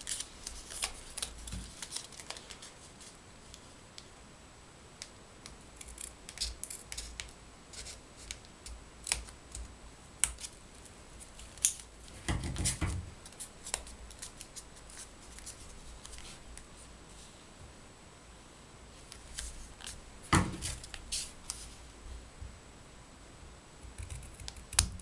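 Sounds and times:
paper rustling: 0:00.0 - 0:03.7, 0:11.2 - 0:16.5, 0:19.0 - 0:21.8.

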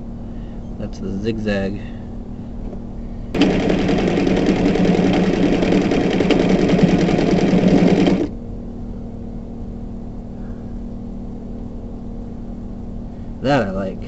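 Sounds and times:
sewing machine stitching: 0:03.4 - 0:08.3.

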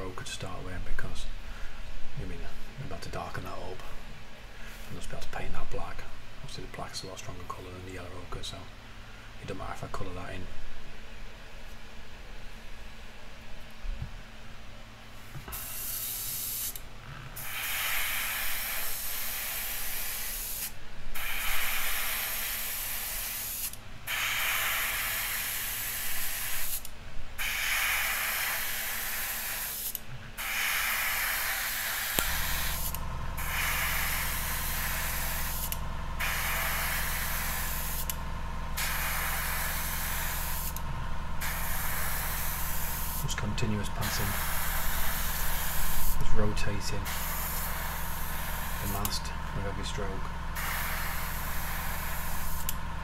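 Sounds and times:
airbrush spraying paint: 0:15.2 - 0:16.8, 0:17.4 - 0:40.8, 0:41.4 - 0:52.8
low motor hum: 0:32.2 - 0:53.0.

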